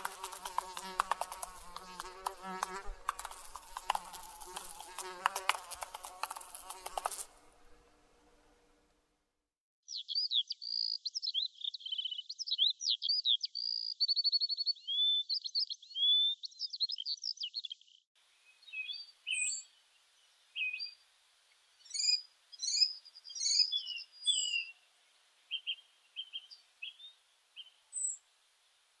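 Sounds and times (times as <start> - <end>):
bird chirps and whistled calls: 9.9 - 17.8, 21.9 - 24.8
songbird singing: 9.9 - 28.3.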